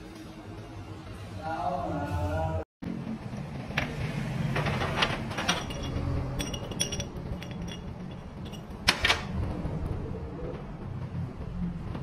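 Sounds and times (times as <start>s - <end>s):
metal parts clinking: 4.9s - 9.3s.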